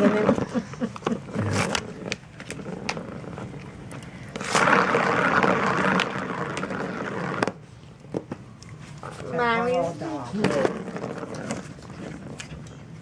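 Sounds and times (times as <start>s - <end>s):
plastic ball rolling in track: 0.0s - 8.4s, 10.3s - 12.4s
teeth and claws scraping toy: 1.0s - 7.6s, 9.0s - 12.7s.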